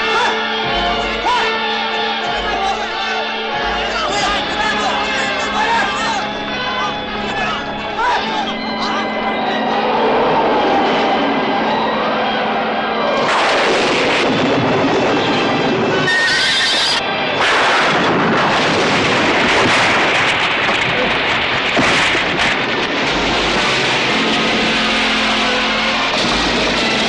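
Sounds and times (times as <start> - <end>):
background music: 0.0 - 16.2, 22.5 - 27.0
loud battle din: 13.1 - 27.0
horses whinnying: 16.0 - 17.0.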